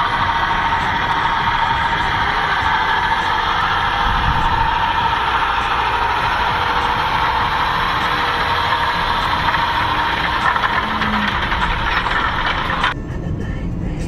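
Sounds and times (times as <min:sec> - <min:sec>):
tractor engine under load: 0:00.0 - 0:13.0
low rumble: 0:00.0 - 0:14.0.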